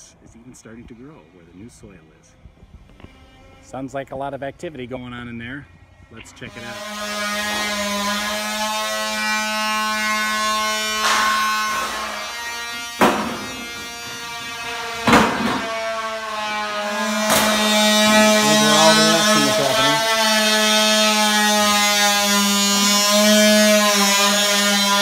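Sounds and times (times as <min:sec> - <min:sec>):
power tool motor whining: 0:06.2 - 0:25.0
sharp knocks: 0:13.0 - 0:14.3, 0:15.0 - 0:16.0, 0:17.0 - 0:19.4.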